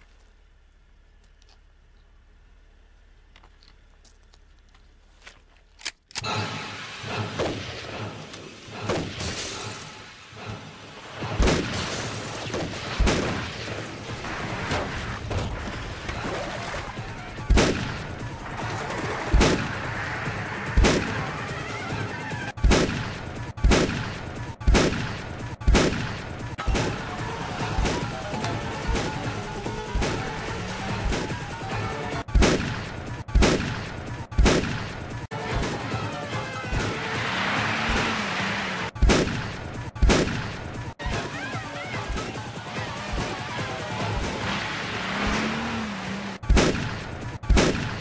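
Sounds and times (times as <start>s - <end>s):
shotgun blasts: 11.3s - 15.8s, 17.4s - 19.9s, 20.8s - 21.3s, 22.6s - 36.0s, 39.0s - 40.8s, 46.4s - 48.0s.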